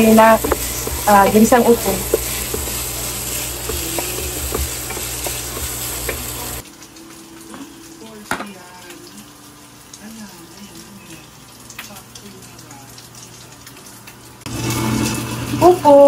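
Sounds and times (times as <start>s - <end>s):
wooden spatula scraping pan: 0.0s - 6.6s
meat sizzling in a frying pan: 0.0s - 16.0s.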